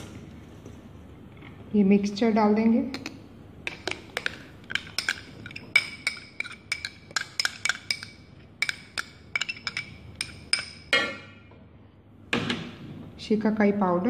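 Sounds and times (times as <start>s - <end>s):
metal spoon clinking on metal: 3.0s - 11.3s.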